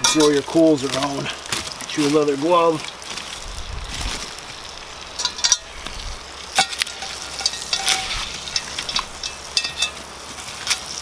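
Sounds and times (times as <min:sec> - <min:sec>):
butter sizzling in pot: 0:00.0 - 0:11.0
coals raked clicks and scrapes: 0:00.0 - 0:11.0.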